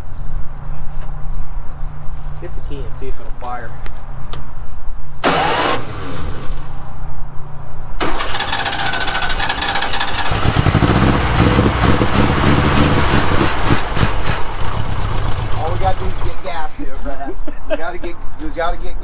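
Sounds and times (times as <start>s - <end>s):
engine cranking and catching: 5.2s - 6.8s, 8.0s - 16.6s
engine burst: 5.2s - 6.9s, 8.0s - 16.6s.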